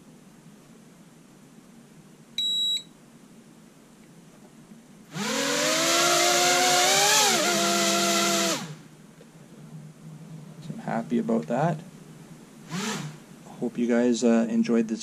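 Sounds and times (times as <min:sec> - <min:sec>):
high electronic beep: 0:02.4 - 0:02.9
quadcopter motors whining: 0:05.1 - 0:08.8, 0:12.7 - 0:13.2.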